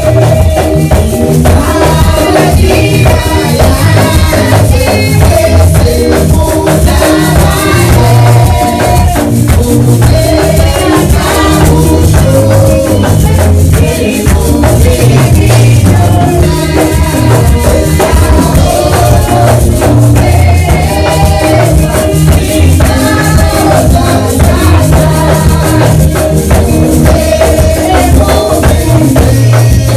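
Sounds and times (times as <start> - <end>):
congregation singing a hymn: 0.0 - 29.9
heavy bass: 0.0 - 29.9
shaker rattling: 0.0 - 29.9.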